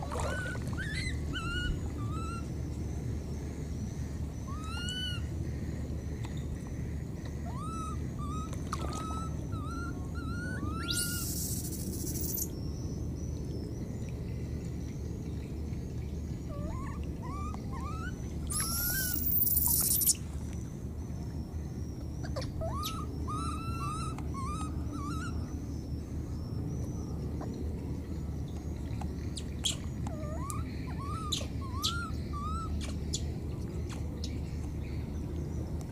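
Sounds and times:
low background rumble: 0.0 - 35.9
baby monkey squeaking: 0.4 - 2.4, 9.1 - 12.5, 16.5 - 20.2, 22.3 - 25.3, 29.6 - 32.9.

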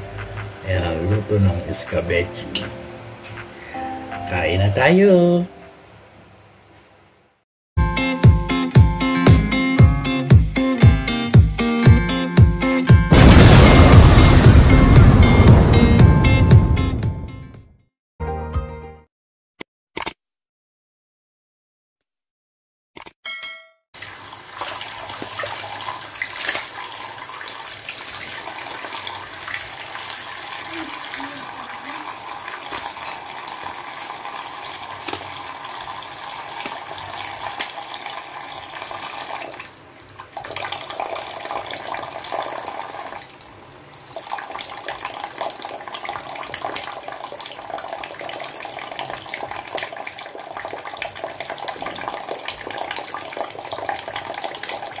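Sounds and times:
tap water running into sink: 24.0 - 43.4, 44.0 - 55.0.

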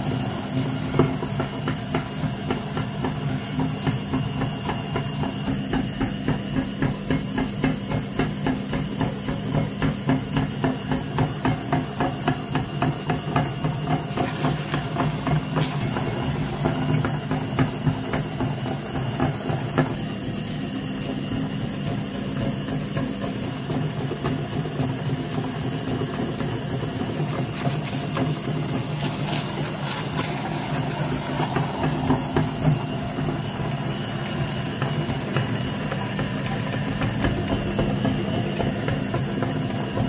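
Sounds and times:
meat grinder motor hum: 0.0 - 40.0
grinder auger knocking: 11.6 - 19.6, 25.1 - 39.4.

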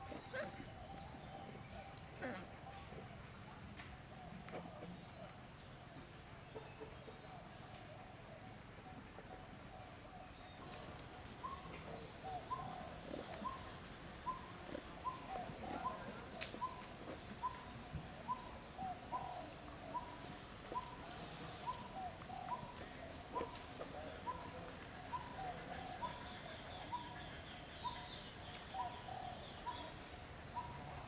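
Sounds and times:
bird hooting: 11.4 - 21.0.

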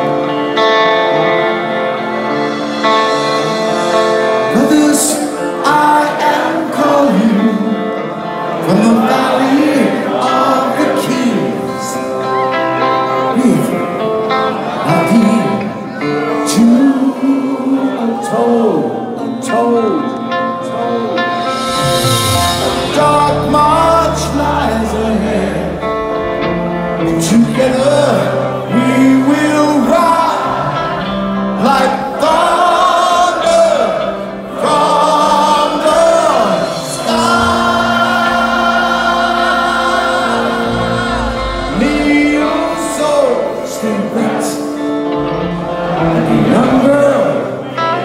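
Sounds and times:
live heavy metal band: 0.0 - 48.0.

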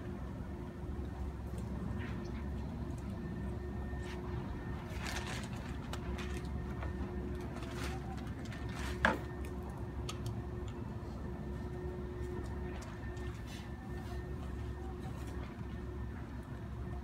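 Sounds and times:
steady low hum: 0.0 - 17.0
faint clicks and rustles: 3.9 - 10.8.

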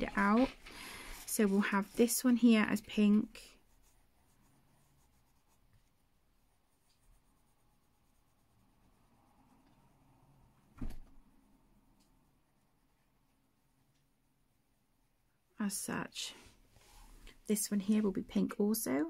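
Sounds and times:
pencil scratching on paper: 0.1 - 9.1.

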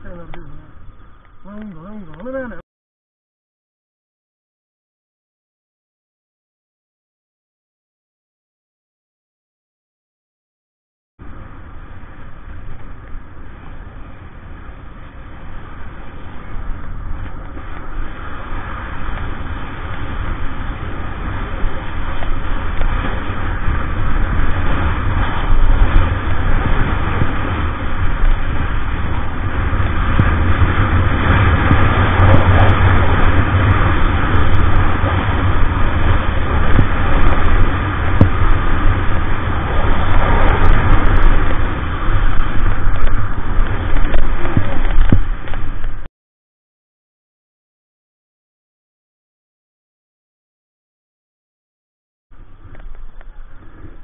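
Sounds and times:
wind buffeting microphone: 11.2 - 46.1, 52.3 - 54.0
skis sliding over snow: 12.6 - 46.1, 52.4 - 54.0.

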